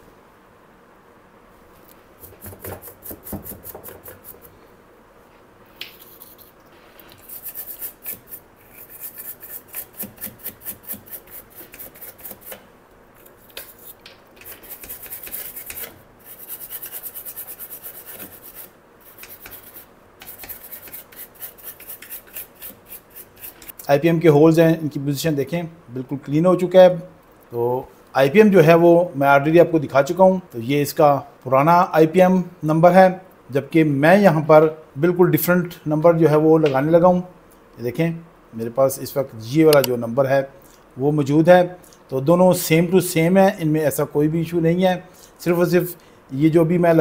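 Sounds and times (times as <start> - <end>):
brush scrubbing circuit board: 2.2 - 4.6, 5.9 - 12.6, 13.2 - 23.7.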